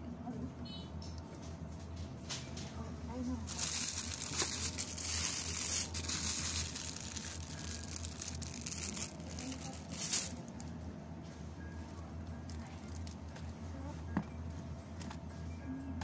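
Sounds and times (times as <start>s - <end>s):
plastic bag crinkling: 3.4s - 10.7s.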